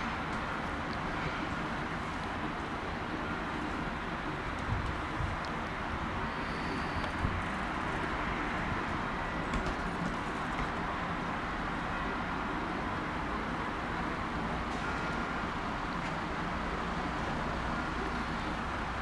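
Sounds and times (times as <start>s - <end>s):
distant train rumble: 0.0s - 19.0s
pigeon wings flapping: 9.5s - 10.7s.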